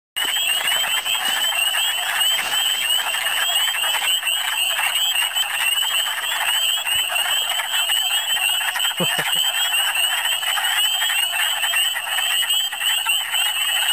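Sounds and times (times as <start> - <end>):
frogs clucking chorus: 0.2 - 13.9
high rapidly repeating call: 0.2 - 13.9.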